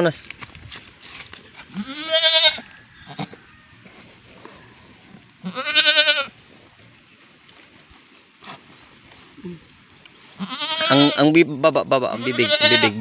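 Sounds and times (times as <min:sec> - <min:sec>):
goat bleating: 0:01.6 - 0:03.4, 0:05.4 - 0:06.4, 0:10.3 - 0:11.4, 0:12.1 - 0:13.0.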